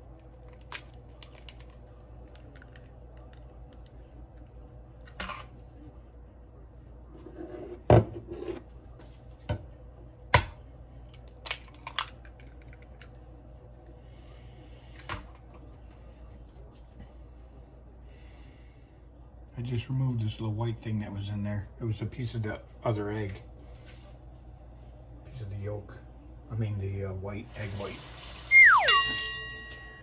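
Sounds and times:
eggshell crackling: 0.0 - 4.0.

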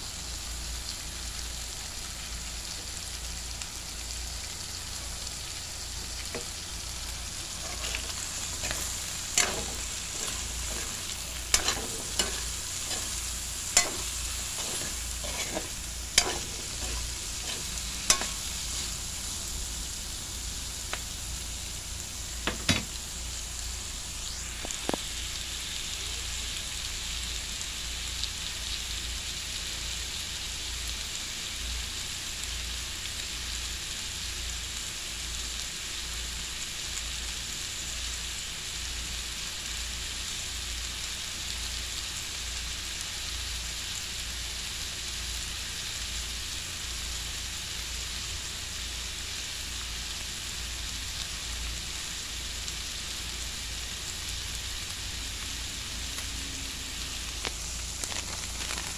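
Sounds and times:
food sizzling in a wok: 0.0 - 58.9
metal spatula clinking and scraping: 7.6 - 19.0.

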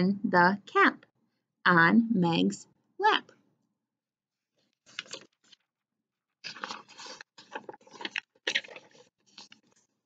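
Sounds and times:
paper pages rustling and crinkling: 4.6 - 5.8, 6.4 - 10.0.

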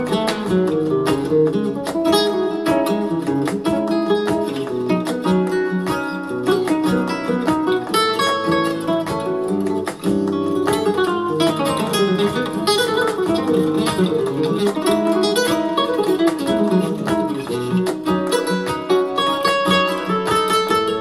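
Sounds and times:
guitar music with fast plucked notes: 0.0 - 21.0.

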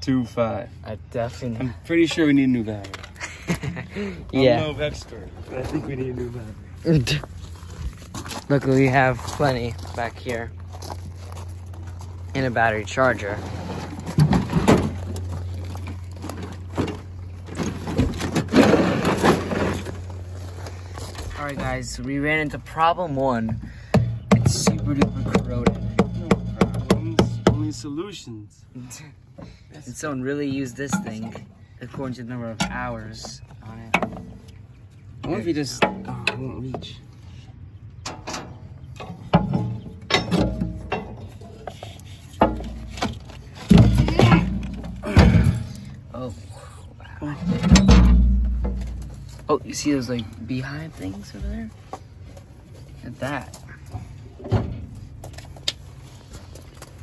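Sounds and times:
steady low hum: 0.0 - 57.0
metal toolbox knocking and scraping: 13.0 - 20.3, 23.4 - 27.8, 38.0 - 46.1, 47.2 - 49.5.

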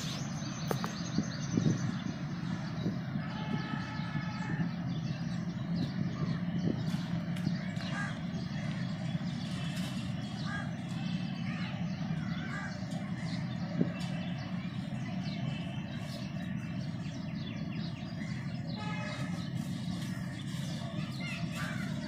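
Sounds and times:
birds chirping: 0.0 - 22.0
crows cawing: 7.8 - 8.7.

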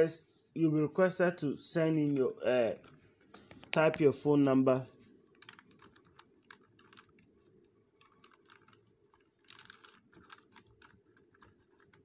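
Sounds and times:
faint keyboard keystrokes: 5.3 - 7.3, 8.0 - 12.0.

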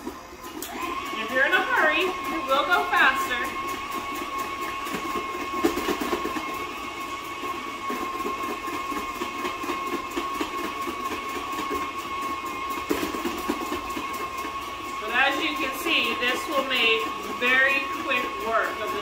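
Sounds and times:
mixer motor whine: 0.0 - 19.0.

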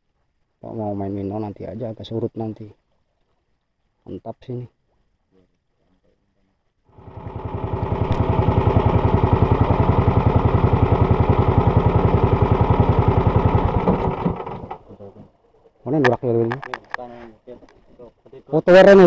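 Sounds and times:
small boat engine throbbing: 7.0 - 14.9.

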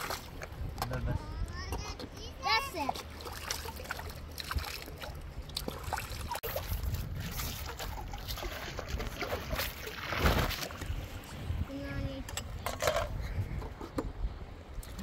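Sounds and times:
rushing river water: 0.0 - 0.6.

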